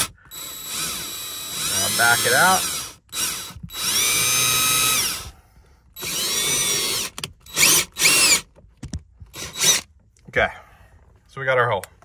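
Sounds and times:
power drill whining: 0:00.0 - 0:08.5, 0:09.2 - 0:09.9.

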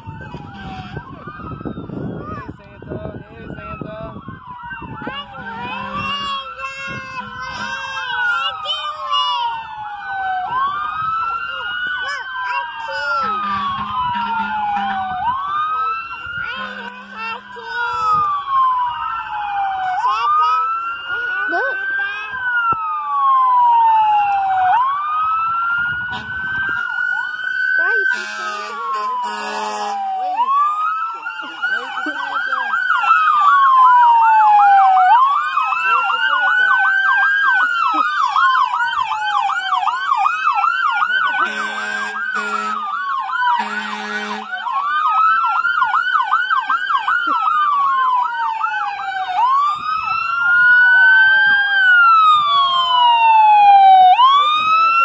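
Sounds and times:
siren wailing: 0:00.0 - 0:55.0
siren yelping: 0:00.0 - 0:55.0
horn blasts: 0:16.6 - 0:17.5, 0:28.1 - 0:30.0, 0:41.4 - 0:42.9, 0:43.6 - 0:44.6.

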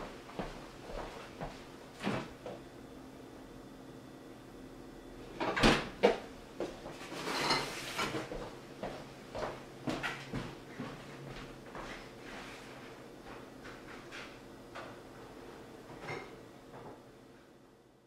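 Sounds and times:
footsteps on hard floor: 0:00.3 - 0:02.6, 0:08.3 - 0:12.5
rattling scrape: 0:07.1 - 0:08.2.

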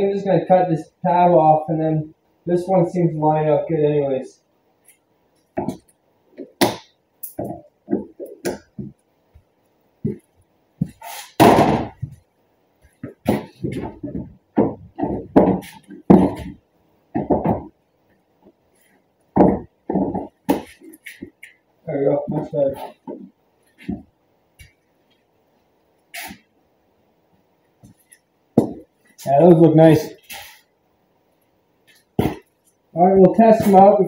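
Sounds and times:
plastic knocking and clattering: 0:13.0 - 0:17.8, 0:19.4 - 0:21.3.

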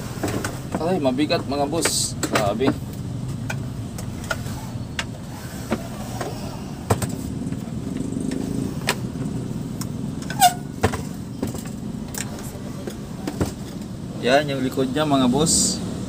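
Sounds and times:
short squeak: 0:10.3 - 0:10.7.

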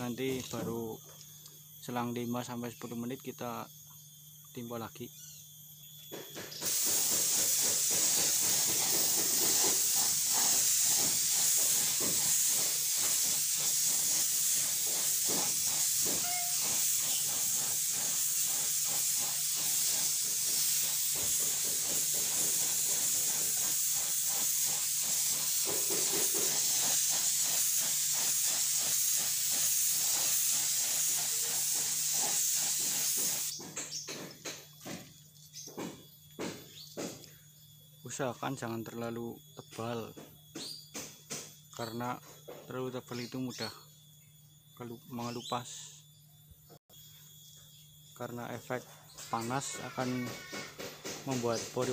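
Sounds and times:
paint spray gun hissing: 0:06.4 - 0:34.0, 0:49.3 - 0:51.9.

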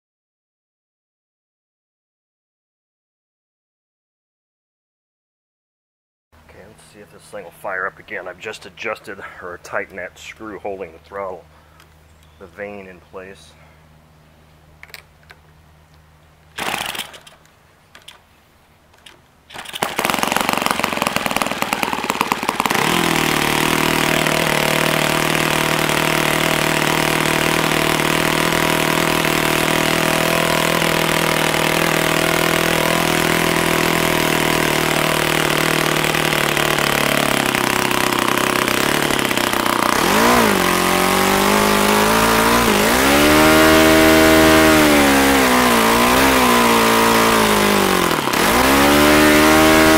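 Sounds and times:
model aircraft engine running: 0:19.5 - 0:49.9.

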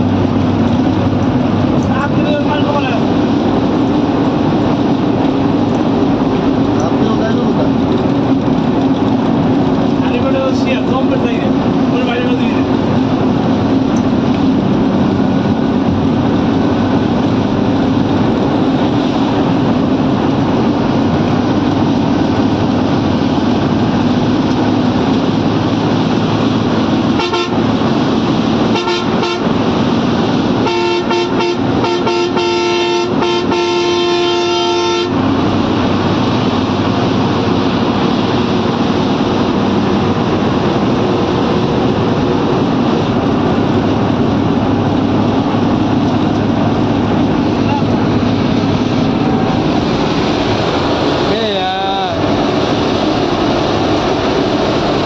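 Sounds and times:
coach engine and road noise: 0:00.0 - 0:55.0
vehicle horn tooting: 0:27.2 - 0:27.6, 0:28.7 - 0:29.5, 0:30.6 - 0:35.2.

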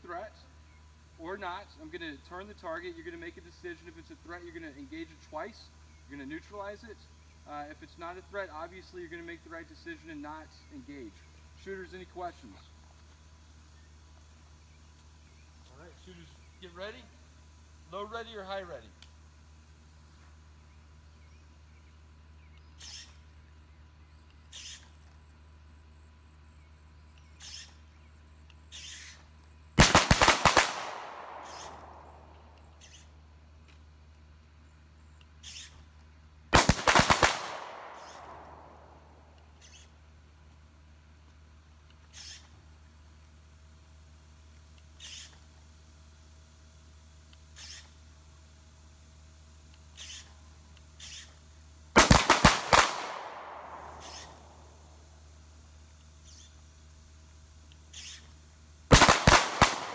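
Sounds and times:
handgun shots with echo: 0:29.8 - 0:32.3, 0:52.0 - 0:54.5, 0:58.9 - 0:59.9.

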